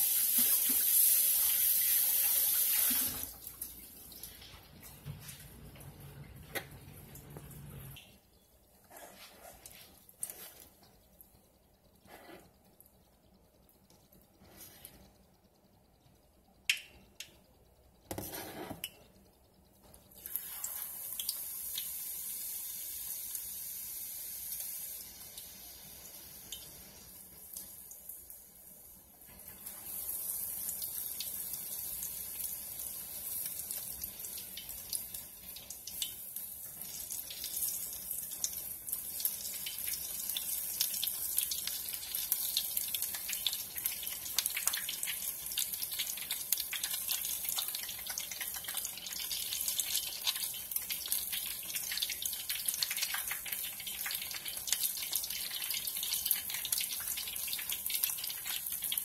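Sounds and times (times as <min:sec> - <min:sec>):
shrimp sizzling in hot oil: 0:00.0 - 0:03.3, 0:20.2 - 0:27.1, 0:29.6 - 0:59.0.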